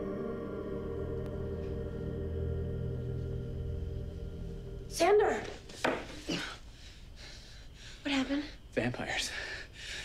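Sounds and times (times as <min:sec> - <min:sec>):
low drone: 0:00.0 - 0:05.8.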